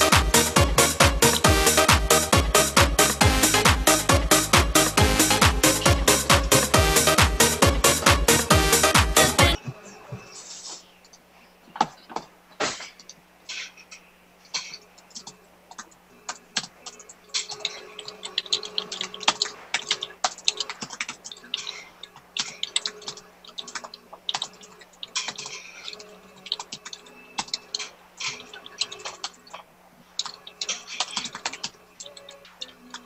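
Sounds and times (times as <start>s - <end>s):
faint hum: 0.0s - 33.0s
keyboard typing: 15.0s - 33.0s.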